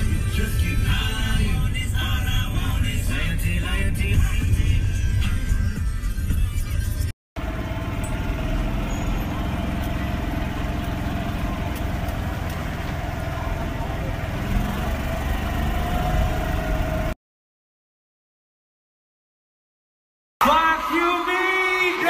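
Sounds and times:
vehicle engine rumble from inside: 0:00.0 - 0:17.2.

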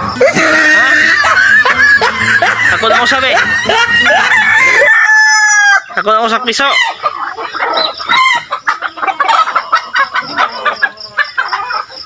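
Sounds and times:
chickens clucking: 0:00.0 - 0:12.0
rooster crowing: 0:00.1 - 0:06.0
ducklings peeping: 0:05.4 - 0:12.0.

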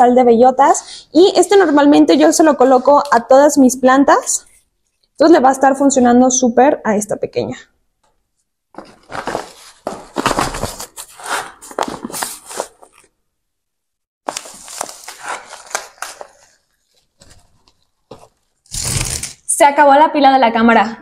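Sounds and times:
paper bag crinkling: 0:08.7 - 0:13.1, 0:14.3 - 0:19.5.

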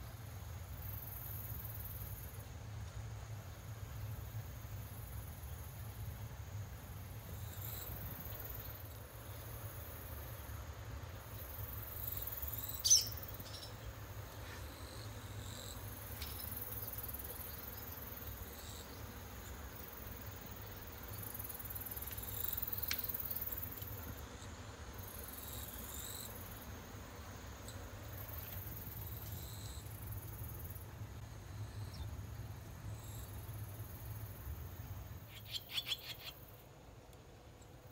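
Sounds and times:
insect chirring: 0:11.2 - 0:14.0, 0:14.7 - 0:26.7, 0:27.4 - 0:36.7.

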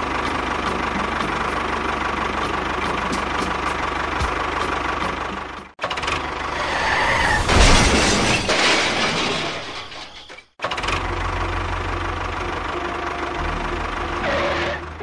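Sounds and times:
tractor engine chugging: 0:00.0 - 0:06.5, 0:10.6 - 0:15.0.

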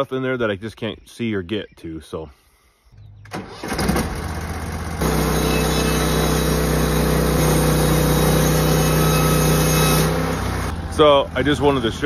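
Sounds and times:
sawmill gas engine running: 0:03.4 - 0:12.0.

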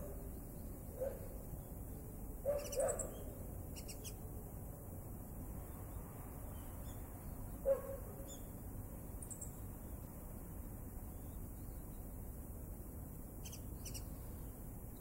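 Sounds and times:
small birds chirping: 0:00.0 - 0:04.3, 0:05.6 - 0:08.6, 0:09.2 - 0:09.7, 0:13.3 - 0:15.0.

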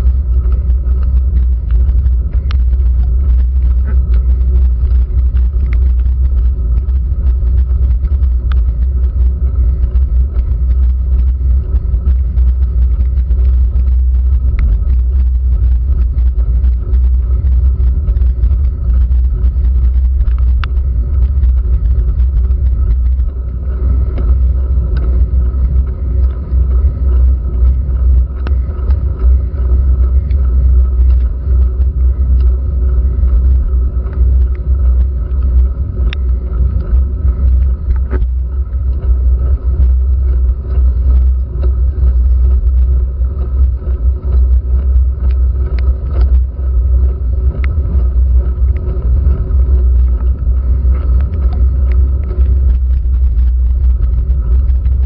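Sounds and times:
low rumble of road vibration: 0:00.0 - 0:55.0
rain ticking on camera housing: 0:00.0 - 0:55.0
wind buffeting camera: 0:00.0 - 0:55.0.

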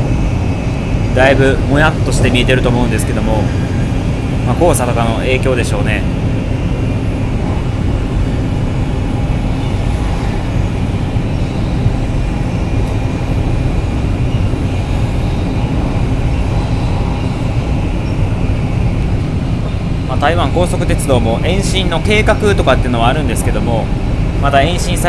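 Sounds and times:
faint high whine: 0:00.0 - 0:25.0
train running noise inside cabin: 0:00.0 - 0:25.0.

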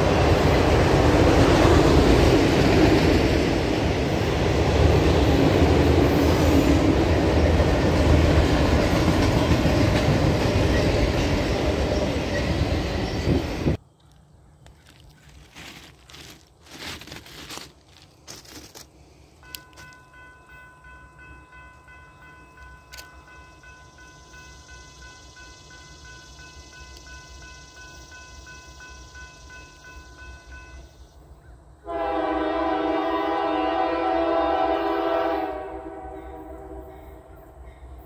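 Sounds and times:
locomotive air horn: 0:31.8 - 0:37.0.

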